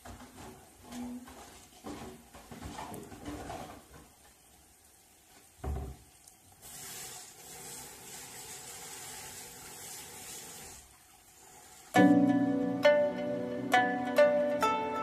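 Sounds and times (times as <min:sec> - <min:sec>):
tap water running into sink: 0:05.6 - 0:11.9.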